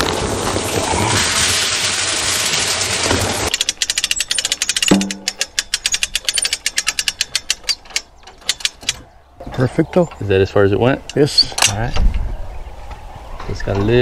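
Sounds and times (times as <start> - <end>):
corn pouring into metal drum: 0.0 - 3.5
rapid ratchet-like clicking: 3.5 - 9.0
ringing metal knock: 4.8 - 5.6.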